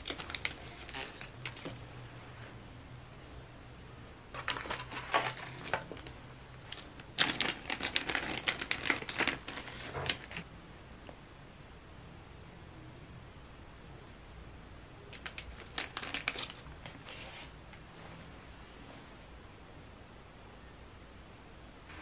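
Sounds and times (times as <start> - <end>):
plastic packaging crinkling: 0.0 - 1.9, 4.3 - 10.5, 15.1 - 17.5.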